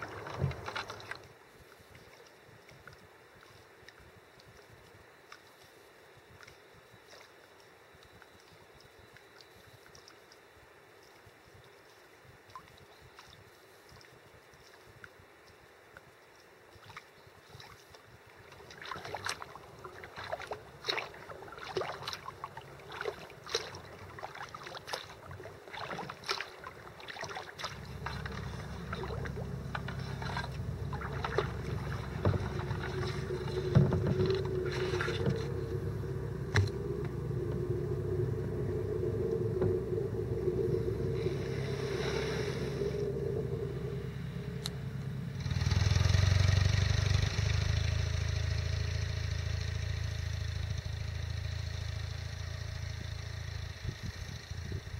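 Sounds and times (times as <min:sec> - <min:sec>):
low rumble: 0:00.0 - 0:01.4, 0:19.2 - 0:54.9
paddle splashing in water: 0:00.0 - 0:04.0, 0:16.7 - 0:44.7.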